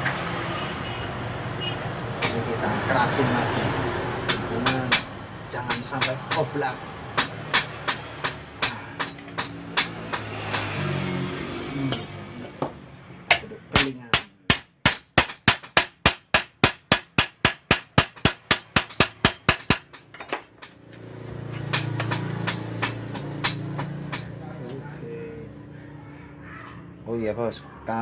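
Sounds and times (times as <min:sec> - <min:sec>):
hammer tapping on metal: 0:04.2 - 0:06.5, 0:07.2 - 0:10.8, 0:11.9 - 0:20.8, 0:21.6 - 0:24.4.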